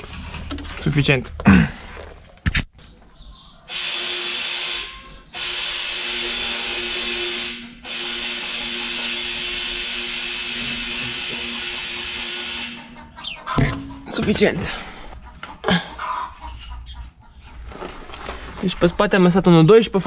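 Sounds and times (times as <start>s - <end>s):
steady whistle-like tone: 4.0s - 12.9s.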